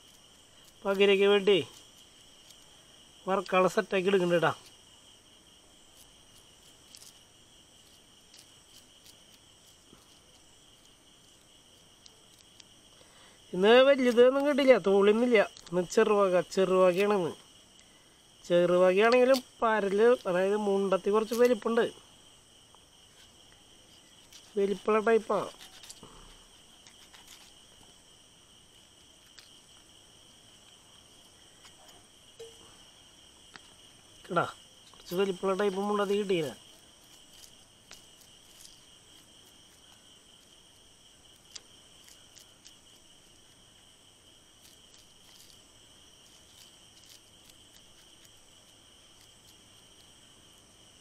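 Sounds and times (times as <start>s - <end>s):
crickets chirping: 0.0s - 51.0s
small clicks: 41.3s - 42.9s.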